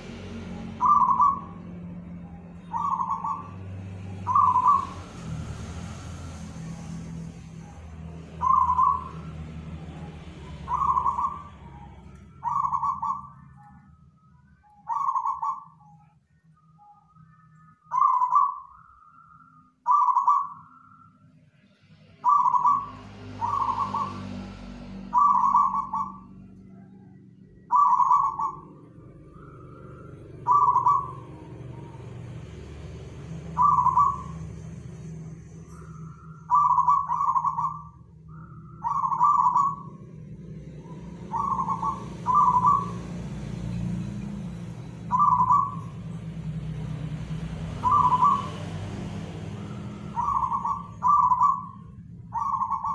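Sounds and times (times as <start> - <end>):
dove cooing: 0.0 - 5.3, 7.6 - 14.0, 14.7 - 16.0, 17.8 - 20.8, 22.2 - 32.4, 33.0 - 52.9.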